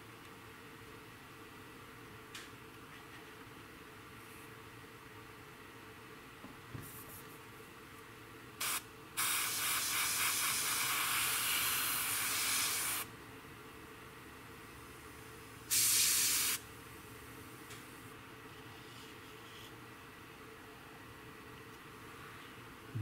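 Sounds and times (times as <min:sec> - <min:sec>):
airbrush spraying hiss: 0:08.6 - 0:13.1, 0:15.7 - 0:16.6.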